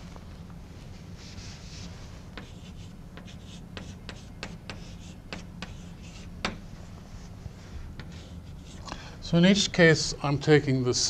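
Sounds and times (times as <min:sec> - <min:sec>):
chalk tapping and scratching: 0:01.3 - 0:06.7, 0:08.0 - 0:08.8.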